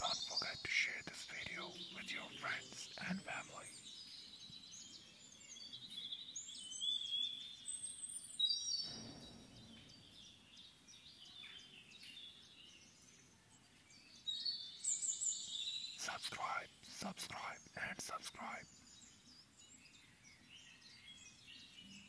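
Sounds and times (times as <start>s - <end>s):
small birds chirping: 0.0s - 22.0s
faint steady hiss: 14.8s - 19.9s.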